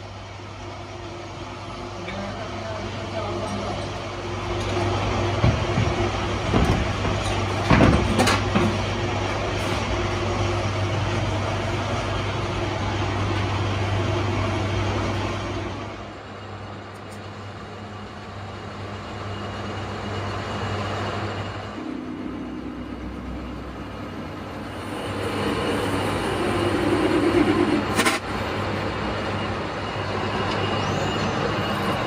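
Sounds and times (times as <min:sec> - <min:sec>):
lathe running hum: 0:17.4 - 0:32.0.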